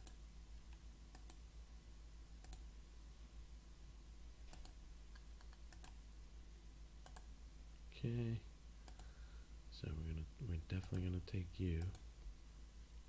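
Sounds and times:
computer mouse clicks: 0.0 - 1.4, 2.4 - 2.7, 4.5 - 6.0, 7.0 - 7.3, 8.8 - 9.2, 10.8 - 11.1, 11.8 - 12.1
low steady hum: 0.0 - 13.0.

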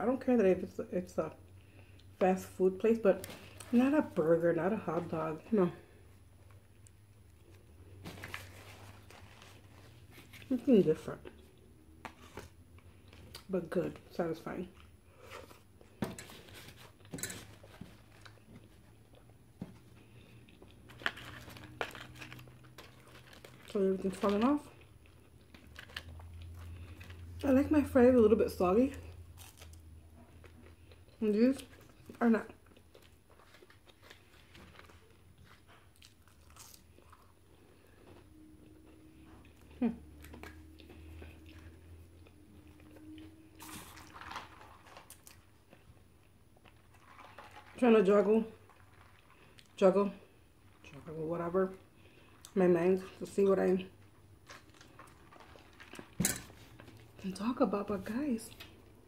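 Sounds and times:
faint room hum: 0.0 - 59.0
faint chewing: 5.8 - 13.5, 14.6 - 27.4, 28.9 - 47.8, 48.5 - 51.0, 51.9 - 57.2
person chewing with wet smacks: 29.3 - 44.1.

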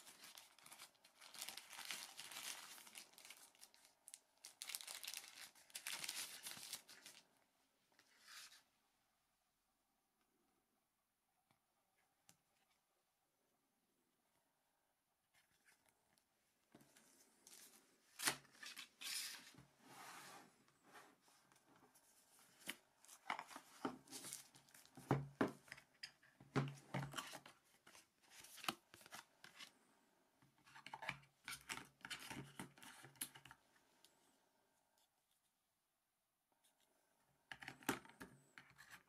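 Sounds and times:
cardboard and plastic rustling: 0.0 - 7.2, 21.9 - 29.7.

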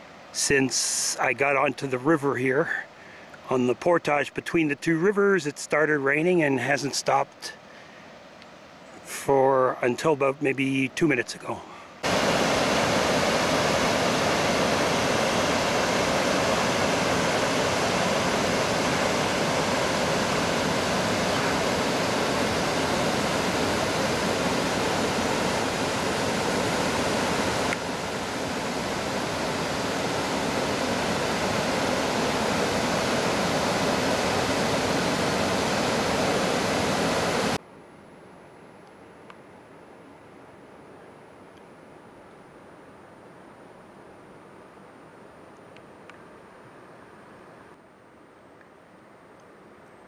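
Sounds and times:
waterfall rushing: 12.0 - 37.6.

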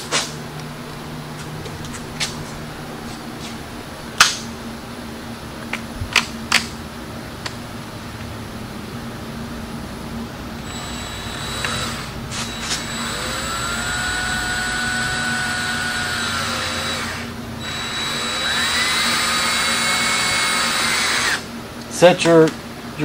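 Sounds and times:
cordless drill running: 10.6 - 21.5.

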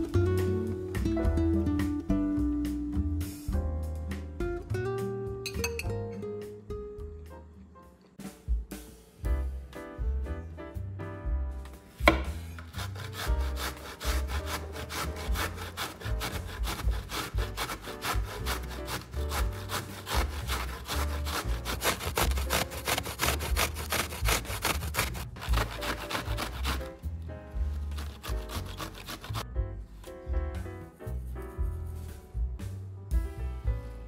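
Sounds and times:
background music: 0.0 - 34.0
food rasping on hand grater: 12.8 - 27.0, 27.8 - 29.4.

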